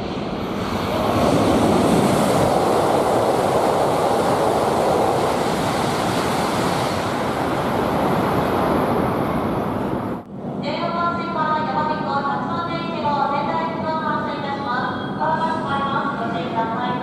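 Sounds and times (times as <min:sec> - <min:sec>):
rush of air and wheel noise: 0:00.0 - 0:10.2
high-speed train passing: 0:00.0 - 0:14.8.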